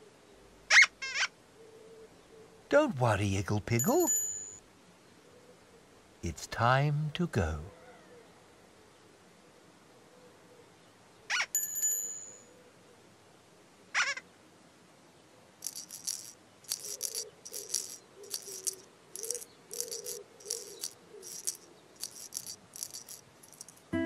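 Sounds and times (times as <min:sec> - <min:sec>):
squeaky sliding calls: 0:00.7 - 0:01.3, 0:14.0 - 0:14.2, 0:15.6 - 0:23.8
ringing chime: 0:03.8 - 0:04.6, 0:11.6 - 0:12.5
rattle shakes: 0:15.6 - 0:24.0.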